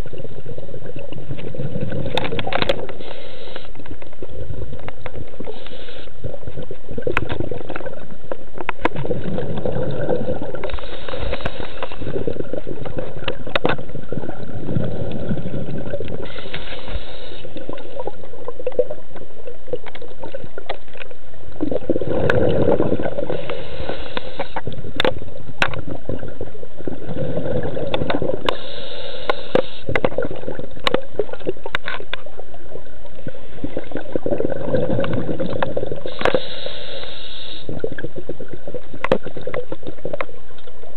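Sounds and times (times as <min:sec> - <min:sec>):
exhaled bubbles gushing: 0:00.0 - 0:03.0, 0:03.9 - 0:28.8, 0:29.4 - 0:36.6, 0:37.6 - 0:40.9
regulator hissing inhale: 0:02.8 - 0:03.9, 0:05.4 - 0:06.2, 0:10.6 - 0:12.4, 0:16.2 - 0:17.8, 0:23.2 - 0:24.7, 0:28.4 - 0:30.0, 0:36.0 - 0:37.9.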